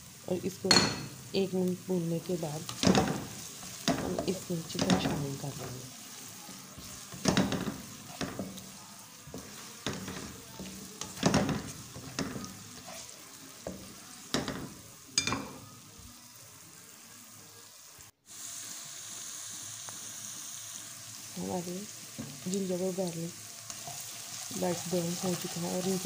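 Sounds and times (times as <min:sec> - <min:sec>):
vegetables sizzling in hot oil: 0:00.0 - 0:26.0
spatula scraping and knocking pan: 0:02.6 - 0:05.9, 0:06.7 - 0:15.7, 0:23.7 - 0:26.0.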